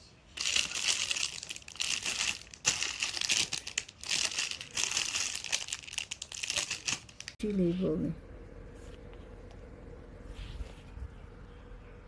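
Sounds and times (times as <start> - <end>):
plastic bags crinkling: 0.3 - 7.4.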